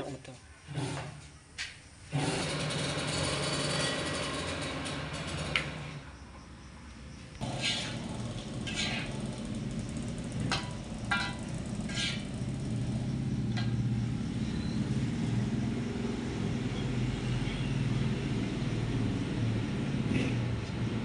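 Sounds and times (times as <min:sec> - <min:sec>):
low motor-like rumble: 0:07.4 - 0:17.0
metal spatula scraping a wok: 0:07.5 - 0:09.2, 0:10.5 - 0:12.4.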